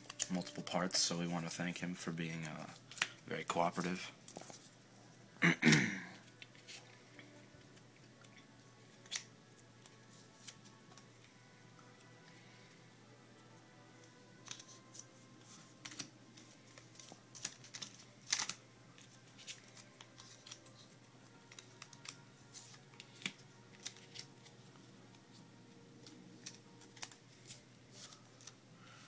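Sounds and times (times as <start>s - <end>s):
cards clicking and tapping: 2.4s - 3.2s, 14.0s - 24.3s, 26.0s - 28.6s.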